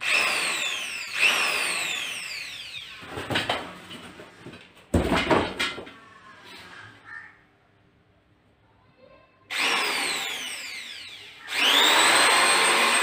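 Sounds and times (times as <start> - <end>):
electric drill whining: 0.0 - 3.0, 9.5 - 13.0.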